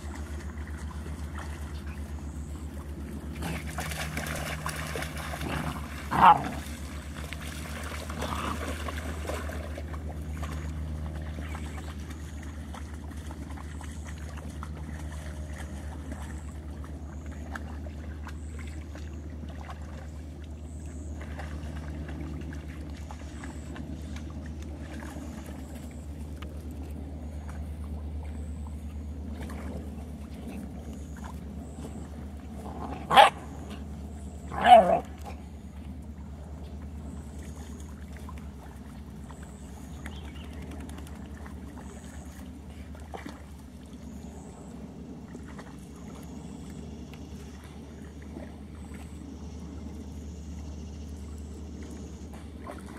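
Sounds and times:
puppies playing: 0.0 - 16.9
low rumble: 0.0 - 52.9
puppy yelps: 34.5 - 35.0.

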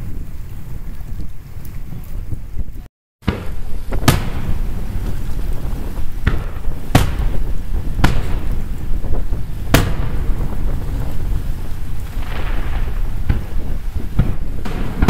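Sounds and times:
low rumble: 0.0 - 15.0
firework shells booming: 3.2 - 15.0.

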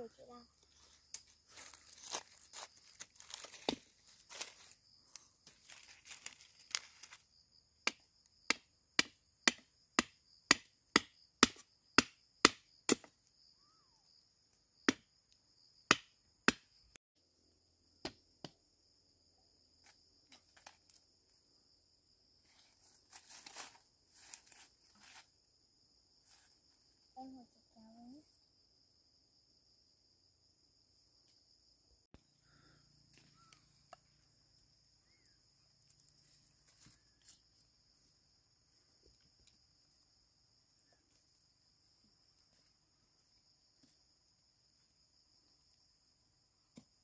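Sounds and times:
insects droning: 0.0 - 47.0
rustling and handling: 0.6 - 7.2
wood being chopped: 3.4 - 3.9, 7.8 - 13.2, 14.8 - 15.1, 15.9 - 16.7, 18.0 - 18.6.

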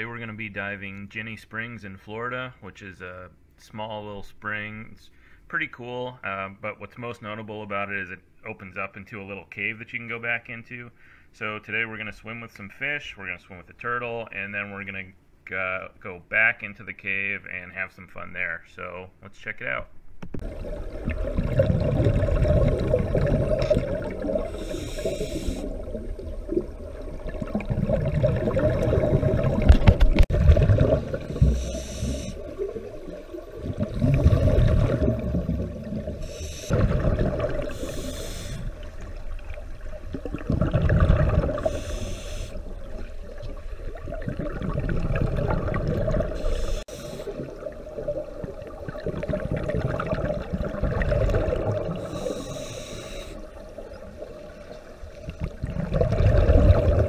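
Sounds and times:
gurgling exhaled bubbles: 20.4 - 57.0
hissing regulator inhale: 24.3 - 26.0, 31.2 - 32.6, 36.2 - 36.8, 37.6 - 38.9, 41.5 - 42.8, 46.3 - 47.5, 51.9 - 53.6.

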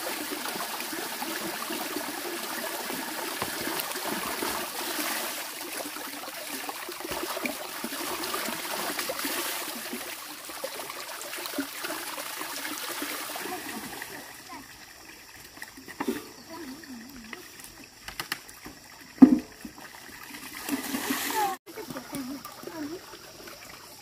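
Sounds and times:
small water splashes: 0.0 - 24.0
water running and trickling: 0.0 - 24.0.

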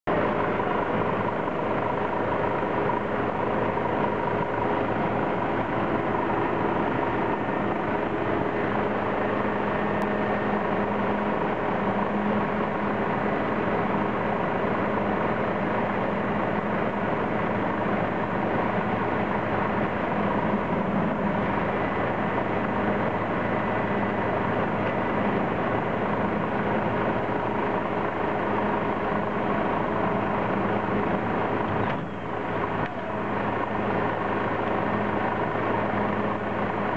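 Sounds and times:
concrete paving machine: 0.0 - 36.9
dump truck diesel engine: 0.0 - 36.9.

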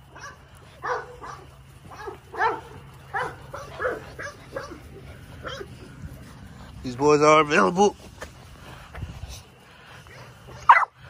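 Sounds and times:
puppies yipping and barking: 0.0 - 7.7, 9.8 - 11.0.

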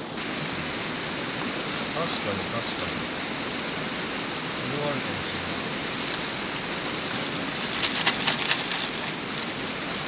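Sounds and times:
steady rain falling: 0.0 - 10.0
plastic packet crinkling: 5.9 - 9.6.

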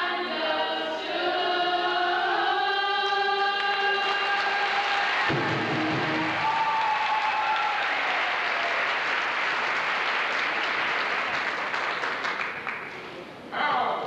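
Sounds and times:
audience applause: 4.0 - 12.9.

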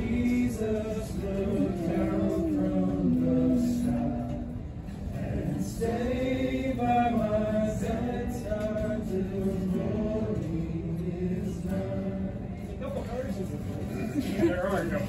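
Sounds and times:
people singing slow song: 0.0 - 12.8
acoustic guitar: 0.0 - 15.0.

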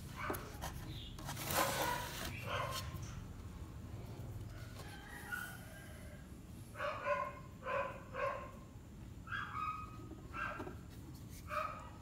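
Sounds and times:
dog barking: 1.8 - 2.9, 6.8 - 8.6, 11.5 - 12.0.

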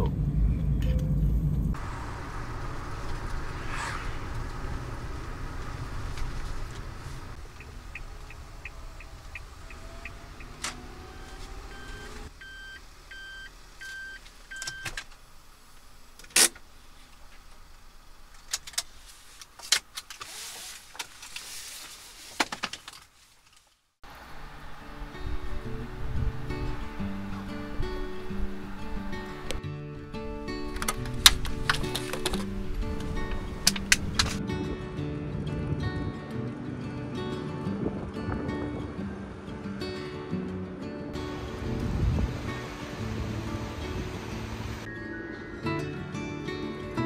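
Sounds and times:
van engine rumble: 0.0 - 22.7, 24.0 - 34.5, 35.4 - 44.9
short beeps: 11.2 - 14.9.

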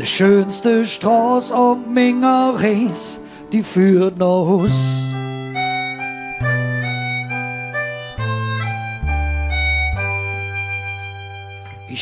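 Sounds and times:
lead instrument melody: 0.0 - 12.0
bass line: 4.5 - 12.0.

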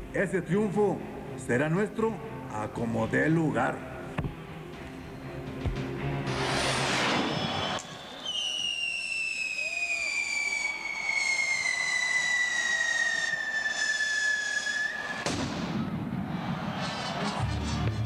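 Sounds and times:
firework burst: 6.3 - 17.2
descending firework whistle: 6.3 - 17.3.

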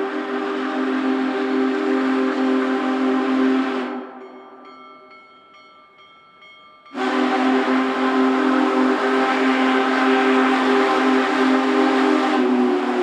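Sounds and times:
steam hissing: 0.0 - 4.1, 7.0 - 13.0
steam whistle blast: 0.0 - 4.3, 7.0 - 13.0.

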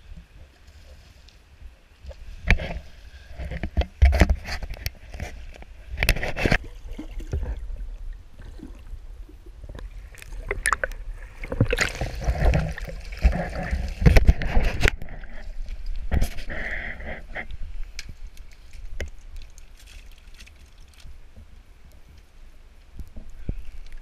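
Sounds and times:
low rumble on microphone: 1.6 - 19.0
river water splashing: 6.2 - 15.6.

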